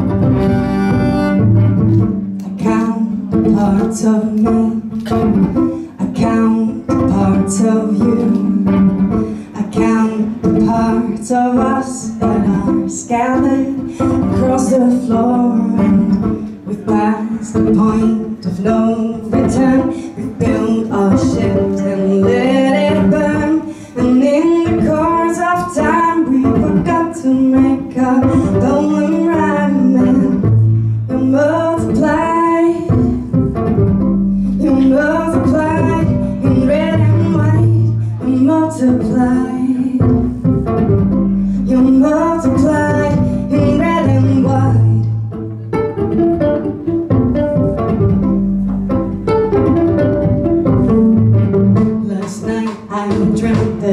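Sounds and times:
violin plucked pizzicato: 0:00.0 - 0:53.9
woman singing: 0:02.4 - 0:33.7, 0:34.5 - 0:45.2, 0:49.7 - 0:53.9
held low notes: 0:29.8 - 0:52.0.

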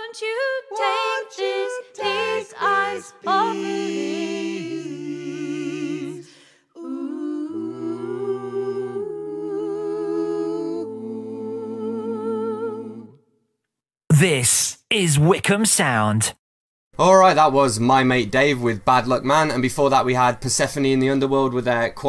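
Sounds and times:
layered singing voices with vibrato: 0:00.0 - 0:13.3
hummed vocal chord: 0:00.7 - 0:13.2.

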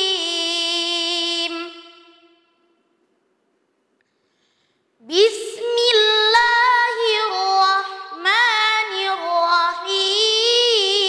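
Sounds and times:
boy chanting melodically: 0:00.0 - 0:02.4, 0:05.0 - 0:11.0.

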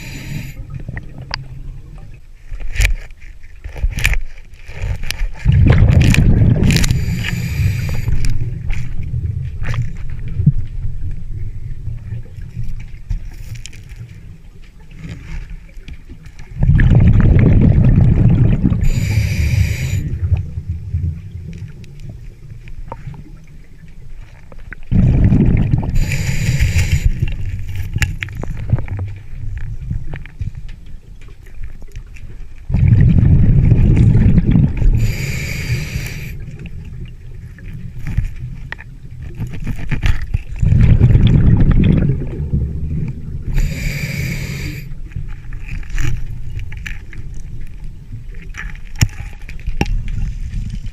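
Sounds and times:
hissing inhale through regulator: 0:00.0 - 0:00.7, 0:06.6 - 0:08.5, 0:18.8 - 0:20.3, 0:25.8 - 0:27.6, 0:34.8 - 0:36.5, 0:43.4 - 0:45.2
bubbling exhale underwater: 0:05.4 - 0:09.4, 0:16.6 - 0:22.2, 0:24.9 - 0:27.4, 0:32.7 - 0:37.1, 0:40.5 - 0:45.2.

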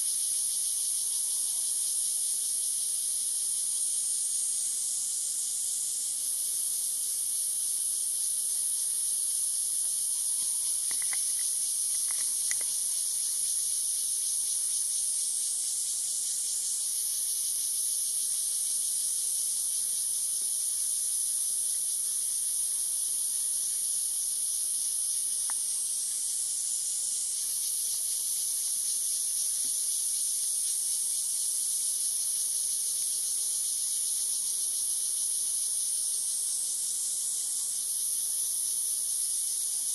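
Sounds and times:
insect chorus drone: 0:00.0 - 0:39.9
faint ticks: 0:09.8 - 0:12.9, 0:25.4 - 0:25.7, 0:29.6 - 0:29.8.

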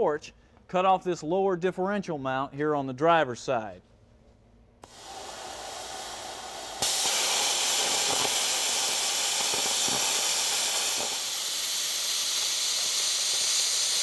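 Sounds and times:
plasma cutter hissing: 0:04.8 - 0:14.0.

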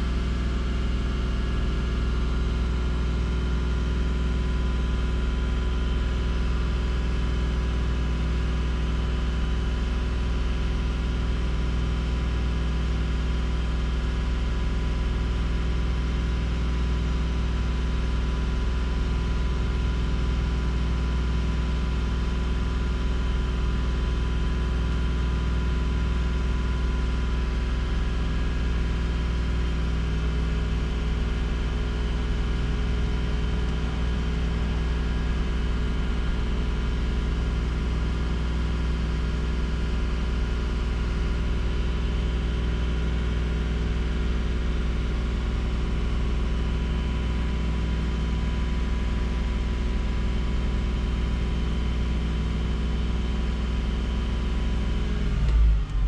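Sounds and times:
car engine idling: 0:17.6 - 0:52.1.

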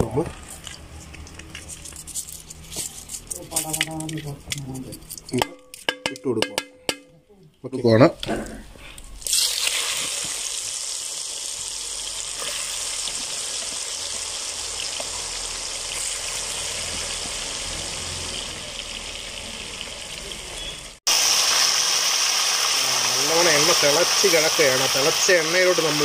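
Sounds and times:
chicken deep-frying in hot oil: 0:09.2 - 0:26.0.

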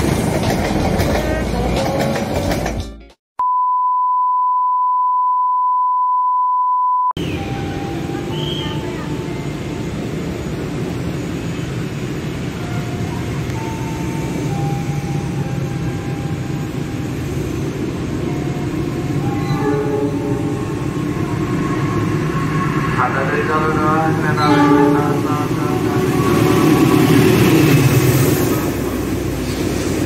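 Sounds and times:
high-pitched test-tone beep: 0:03.4 - 0:08.8
low station rumble: 0:07.2 - 0:30.0.

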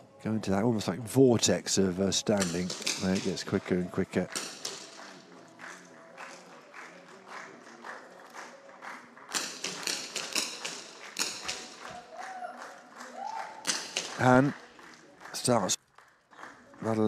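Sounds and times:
rifle shots cracking: 0:09.3 - 0:11.9, 0:13.6 - 0:14.2.

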